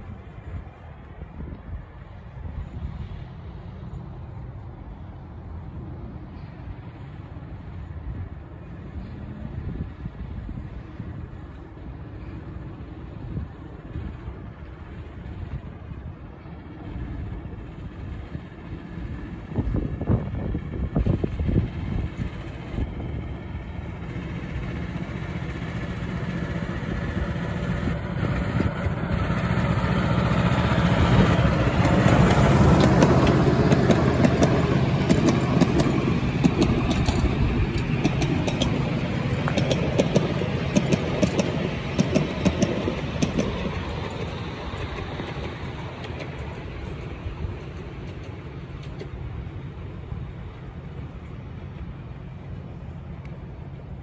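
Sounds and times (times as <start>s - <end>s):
diesel locomotive engine running: 0.0s - 54.0s
wheels clicking over rail joints: 11.2s - 53.9s.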